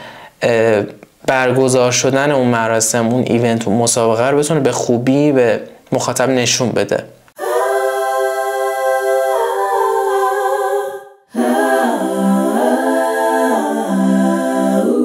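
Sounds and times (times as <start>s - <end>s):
wordless singing: 7.4s - 15.0s.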